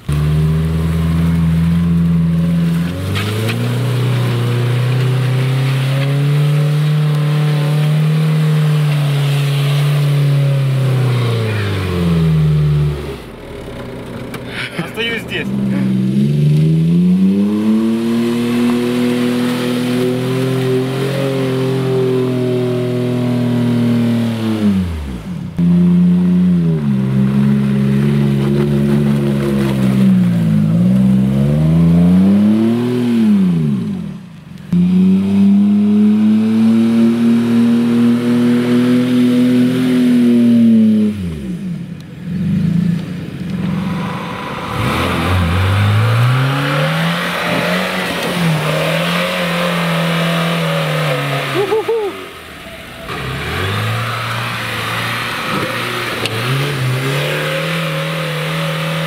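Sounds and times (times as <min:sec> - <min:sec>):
car engine running: 0:00.0 - 0:21.0
car engine revving in mud: 0:00.0 - 0:59.0.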